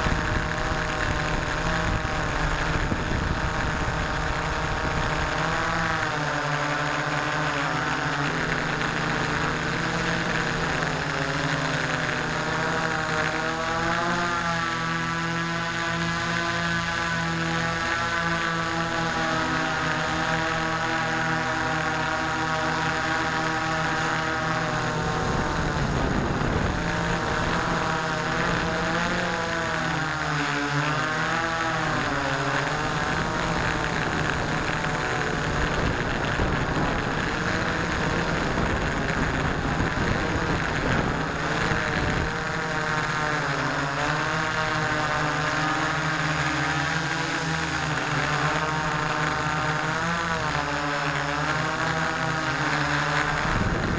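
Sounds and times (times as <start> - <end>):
drone motors buzzing hum: 0.0 - 53.9.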